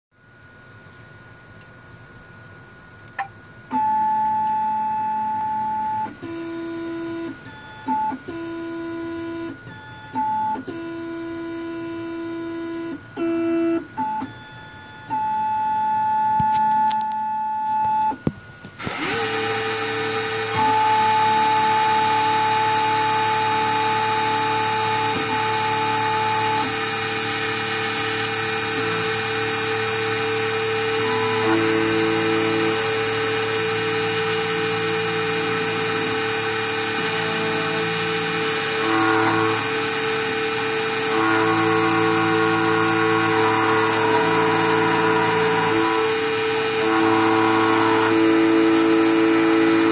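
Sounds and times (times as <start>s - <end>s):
positioning motors whining: 3.0s - 49.9s
cutting spindle whine: 18.6s - 49.9s.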